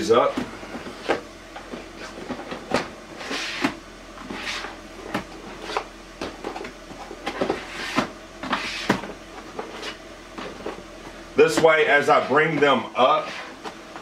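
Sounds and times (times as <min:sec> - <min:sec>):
plastic drawers sliding: 0:00.2 - 0:10.8
plastic knocks and scrapes: 0:00.3 - 0:10.8.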